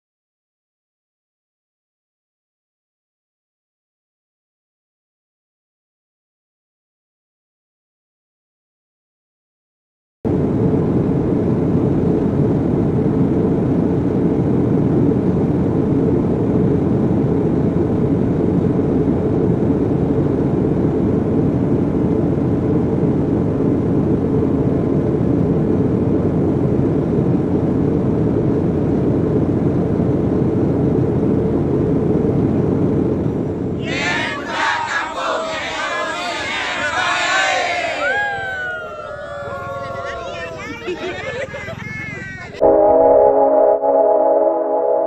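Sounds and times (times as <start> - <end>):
loud low rumbling noise: 10.2 - 45.0.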